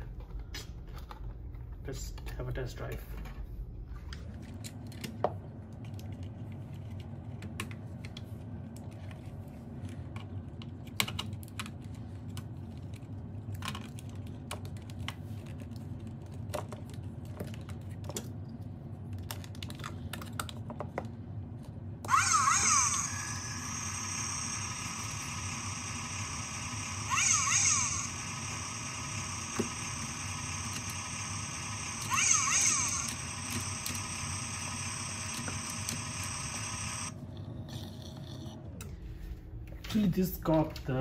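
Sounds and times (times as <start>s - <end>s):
warbling electronic sound: 22.1s - 37.1s.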